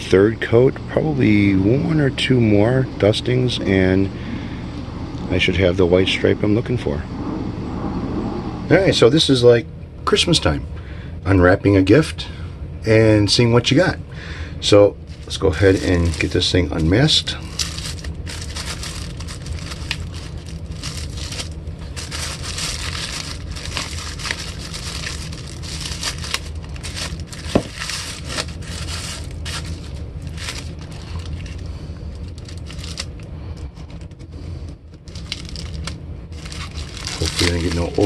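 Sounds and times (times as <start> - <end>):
steady low hum: 0.0 - 38.0
plastic sheet crinkling: 15.1 - 33.2, 35.0 - 38.0.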